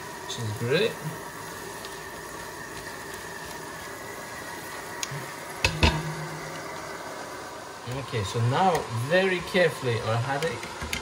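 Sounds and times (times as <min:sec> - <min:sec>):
leek and onion sizzling: 0:00.0 - 0:11.0
sharp knocks: 0:05.6 - 0:06.8.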